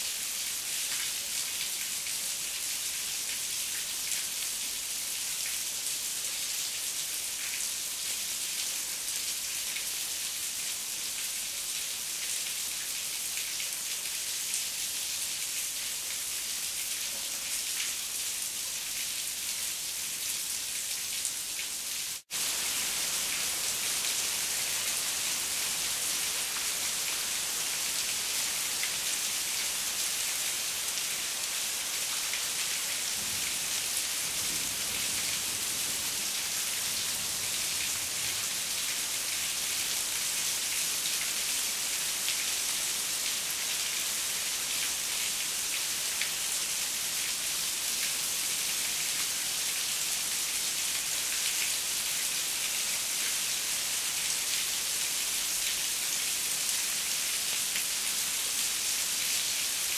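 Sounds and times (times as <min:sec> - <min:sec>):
heavy rain falling: 0:22.4 - 0:40.8.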